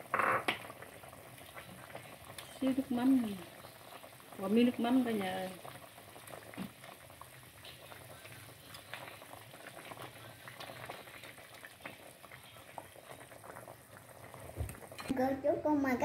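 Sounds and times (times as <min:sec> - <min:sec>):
soup bubbling on the boil: 0:00.0 - 0:15.1
ladle stirring soup: 0:05.6 - 0:15.1.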